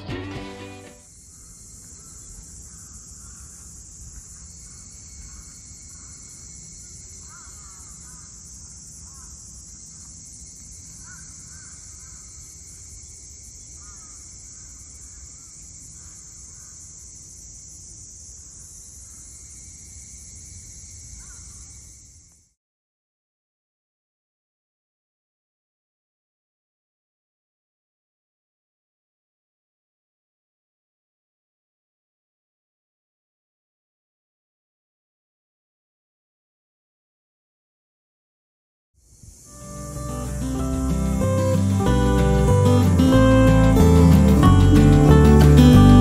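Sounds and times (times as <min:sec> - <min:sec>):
high insect drone: 0:01.0 - 0:22.6, 0:39.0 - 0:46.0.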